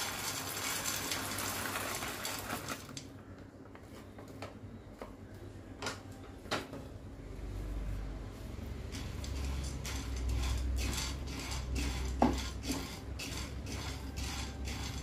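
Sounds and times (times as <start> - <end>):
seeds rattling into frying pan: 0.0 - 3.0.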